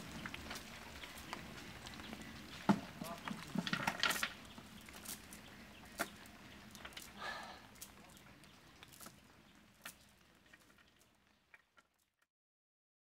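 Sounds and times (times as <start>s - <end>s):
net weights clicking on bamboo: 0.0s - 9.2s.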